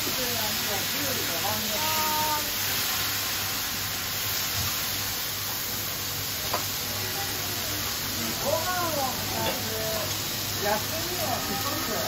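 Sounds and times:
noodles sizzling on a griddle: 0:00.0 - 0:12.0
metal spatulas on griddle: 0:06.4 - 0:06.8, 0:09.2 - 0:12.0.

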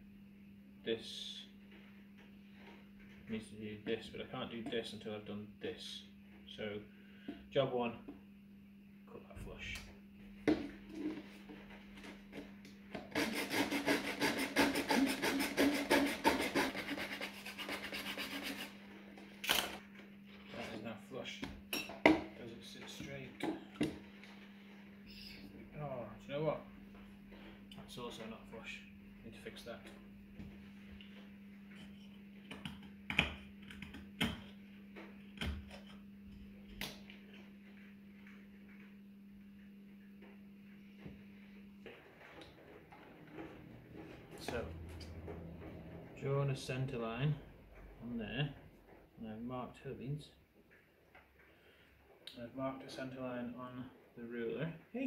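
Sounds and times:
steady low hum: 0:00.0 - 0:55.0
knife scraping wood: 0:13.0 - 0:18.8
saw cutting wood: 0:13.0 - 0:18.8.

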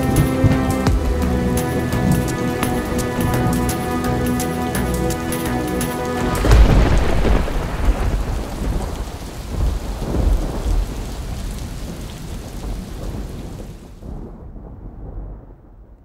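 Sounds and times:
deep rolling rumble: 0:00.0 - 0:11.5.

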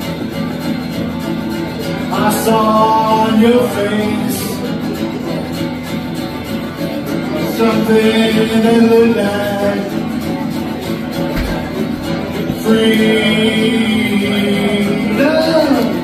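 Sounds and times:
acoustic guitar strumming: 0:00.0 - 0:16.0
man singing long notes: 0:02.0 - 0:05.3, 0:07.2 - 0:10.4, 0:12.1 - 0:16.0.

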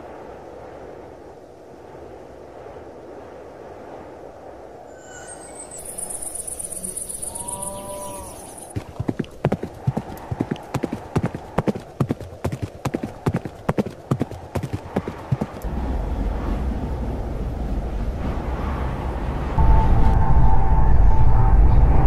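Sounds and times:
high shrill buzz: 0:04.9 - 0:08.7
horses galloping hoofbeats: 0:07.6 - 0:15.7
low rumble: 0:14.2 - 0:22.0.

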